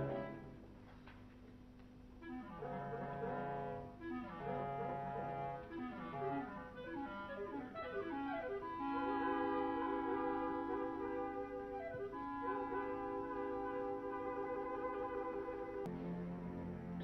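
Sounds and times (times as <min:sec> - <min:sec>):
orchestral ballet music: 0:00.0 - 0:00.6, 0:02.2 - 0:17.0
woodwind melody: 0:00.0 - 0:00.6, 0:02.2 - 0:17.0.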